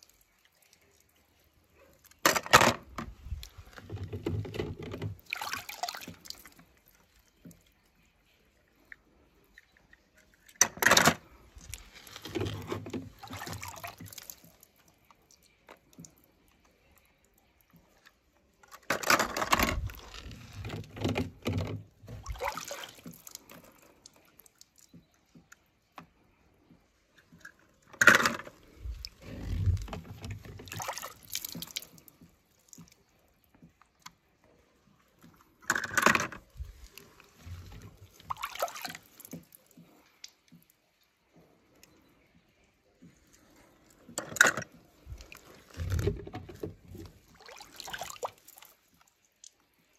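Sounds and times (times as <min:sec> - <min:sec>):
water sloshing: 0:00.0 - 0:16.9, 0:17.7 - 0:25.5, 0:26.2 - 0:34.0, 0:34.8 - 0:40.7, 0:42.8 - 0:49.9
toy cars splashing into water: 0:05.1 - 0:07.0, 0:18.7 - 0:20.6, 0:28.0 - 0:33.1, 0:35.6 - 0:40.4, 0:44.2 - 0:49.7.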